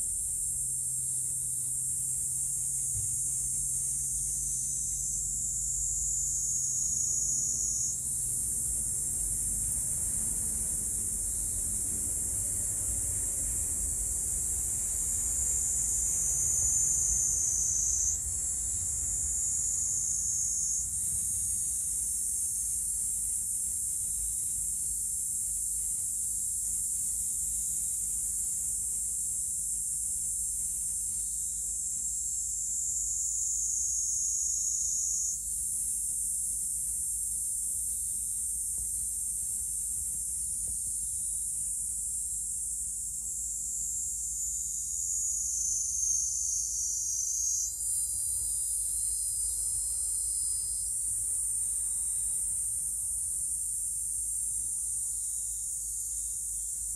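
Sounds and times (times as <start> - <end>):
insects shrilling: 0.0 - 11.8, 12.7 - 56.9.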